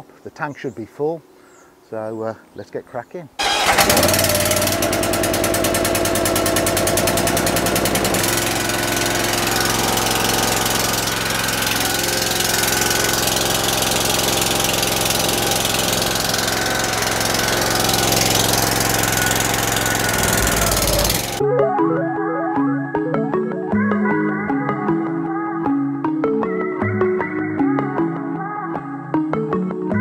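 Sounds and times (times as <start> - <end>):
pressure washer engine running: 3.4 - 21.4.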